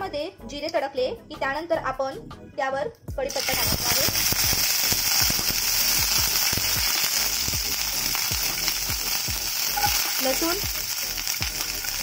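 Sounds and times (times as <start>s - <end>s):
spices sizzling in hot oil: 3.3s - 12.0s.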